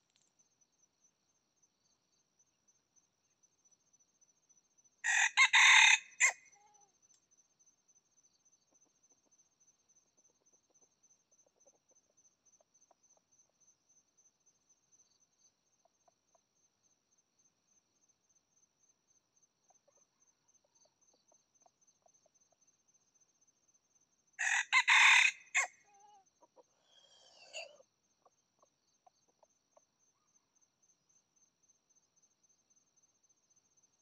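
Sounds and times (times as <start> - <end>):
rooster crowing: 5.0 - 6.4, 24.4 - 25.8.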